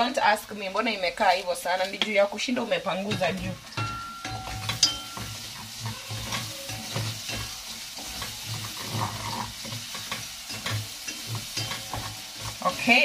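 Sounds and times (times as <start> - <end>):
onions sizzling in a pot: 0.0 - 13.0
wooden spoon scraping a pot: 4.5 - 13.0.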